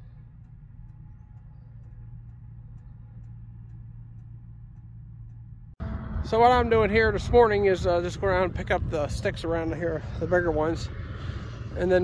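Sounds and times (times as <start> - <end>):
faint light ticks: 0.0 - 5.7
vehicle engine idling: 0.0 - 12.0.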